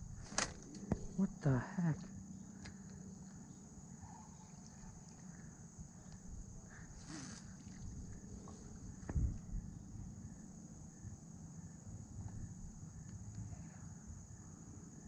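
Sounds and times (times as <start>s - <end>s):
high-pitched insect drone: 0.0s - 15.0s.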